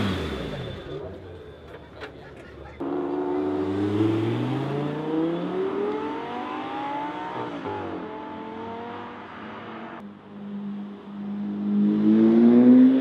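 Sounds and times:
sports car accelerating hard: 2.8 - 10.0, 11.0 - 13.0.

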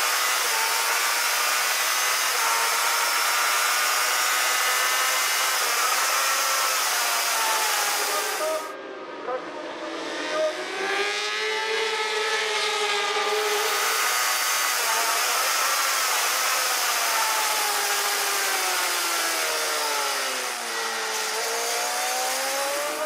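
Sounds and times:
racing motorcycles passing: 7.4 - 15.0, 17.7 - 23.0
motorcycle engine up close: 9.6 - 23.0.

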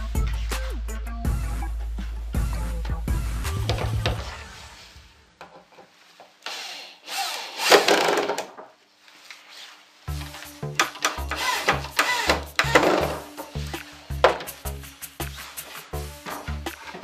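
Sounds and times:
music with heavy beat: 0.0 - 5.1, 10.1 - 17.0
electric drill boring into board: 6.5 - 8.3, 11.0 - 13.2.

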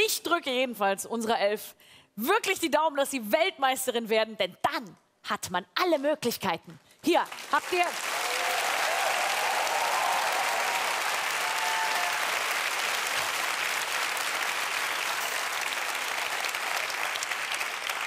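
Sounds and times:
studio audience applauding: 7.2 - 18.0.

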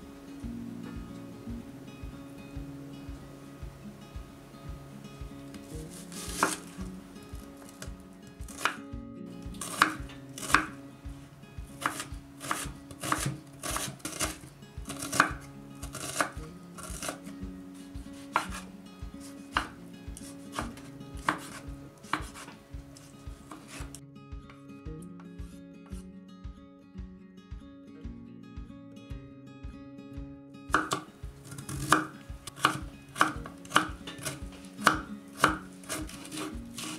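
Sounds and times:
knife chopping on wooden board: 5.6 - 8.8, 9.6 - 10.8, 11.8 - 17.3, 18.2 - 24.0, 30.7 - 36.9.

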